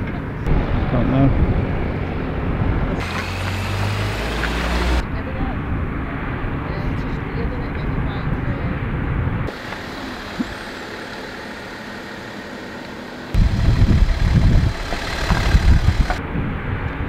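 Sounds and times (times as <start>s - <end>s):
wind buffeting microphone: 13.4s - 17.0s.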